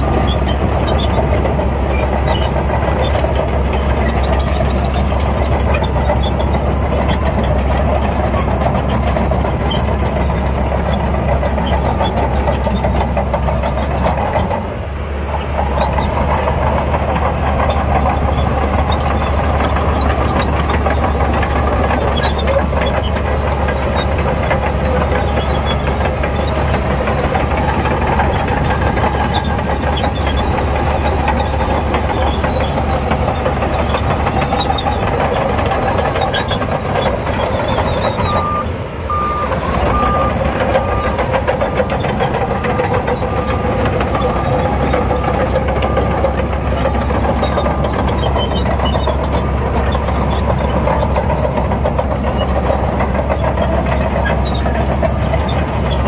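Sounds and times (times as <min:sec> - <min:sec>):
bulldozer diesel engine running: 0:00.0 - 0:56.0
reversing alarm beeping: 0:38.1 - 0:41.2.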